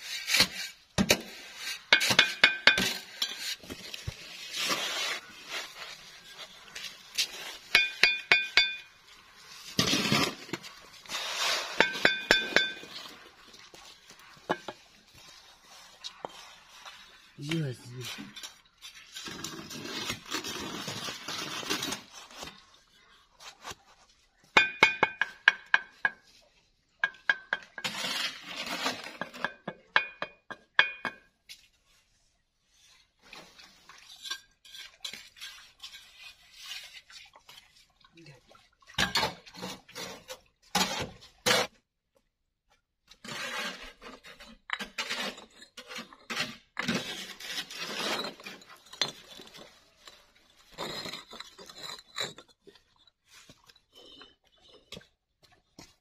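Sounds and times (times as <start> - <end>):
clay bricks clinking and knocking: 2.0 - 2.9, 7.7 - 8.9, 24.6 - 26.2, 27.0 - 27.8, 29.2 - 31.4.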